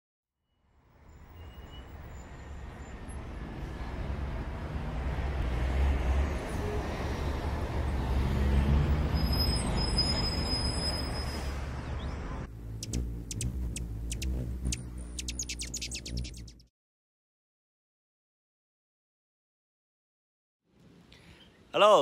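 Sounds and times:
low rumble of road traffic: 0:00.6 - 0:16.6
faint high chirps: 0:12.8 - 0:16.7.

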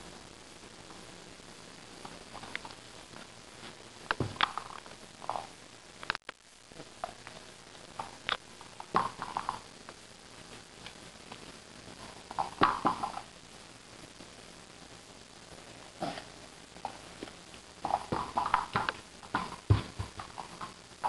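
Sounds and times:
rubber ball dropping on carpet: 0:17.9 - 0:20.5.

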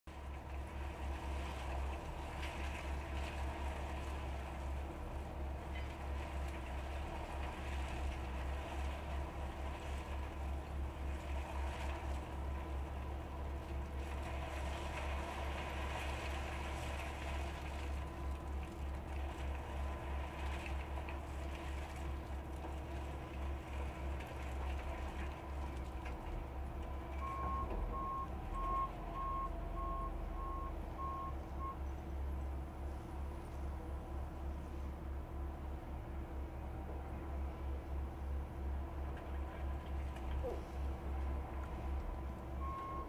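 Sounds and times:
diesel engine rumbling: 0:00.1 - 0:43.0
reversing alarm beeping: 0:27.2 - 0:31.8, 0:42.6 - 0:43.0.

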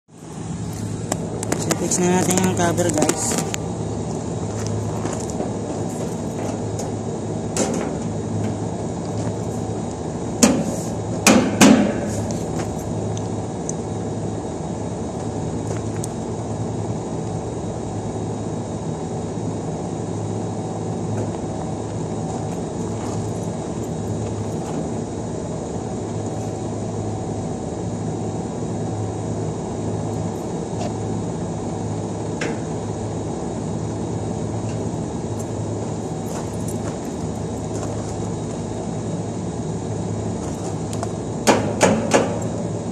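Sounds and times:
low machine hum: 0:00.0 - 0:42.9
sharp metal knocks: 0:10.4 - 0:12.1, 0:41.4 - 0:42.4.

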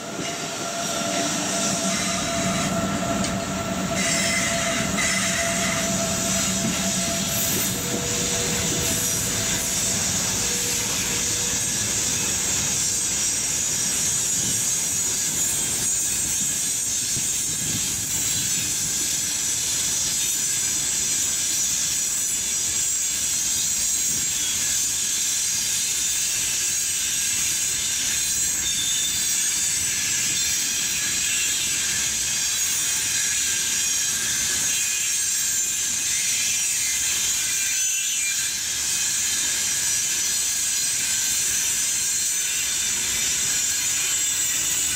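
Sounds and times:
train wheels rumbling on rail: 0:00.0 - 0:44.9.

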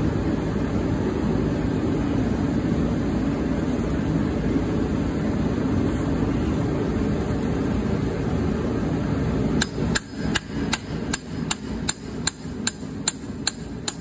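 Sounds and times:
steady low rumble: 0:00.0 - 0:14.0
hammer striking metal: 0:09.6 - 0:14.0.

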